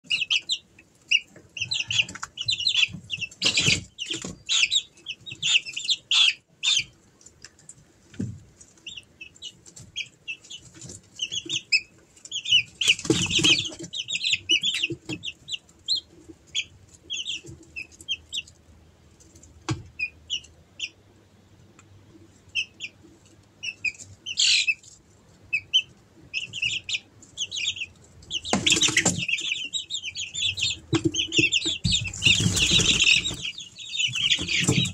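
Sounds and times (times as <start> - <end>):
chicks peeping: 0.0 - 34.9
wing flapping: 31.9 - 34.9.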